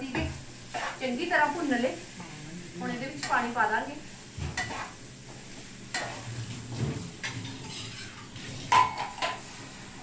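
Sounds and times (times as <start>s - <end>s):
ladle scraping in metal pan: 4.6s - 5.0s, 7.2s - 9.4s.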